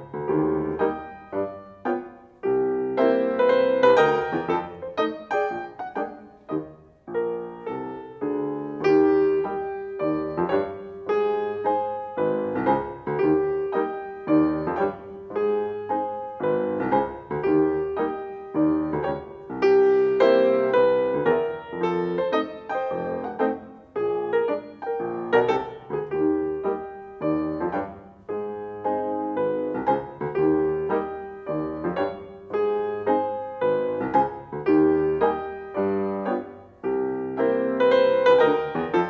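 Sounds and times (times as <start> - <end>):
solo grand piano: 0.0 - 39.0.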